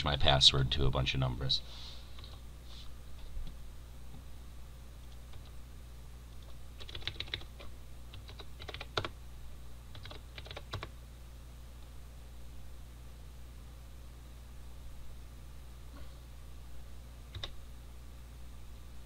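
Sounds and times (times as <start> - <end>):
computer keyboard typing: 5.3 - 5.5, 6.4 - 9.2, 9.9 - 10.9, 17.3 - 17.6.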